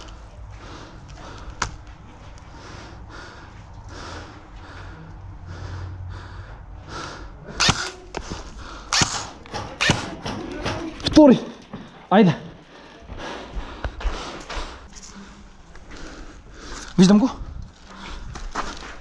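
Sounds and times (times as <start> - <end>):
person breathing heavily: 0.0 - 9.6, 11.7 - 19.0
loud sharp cracks: 7.6 - 8.0, 8.9 - 10.4.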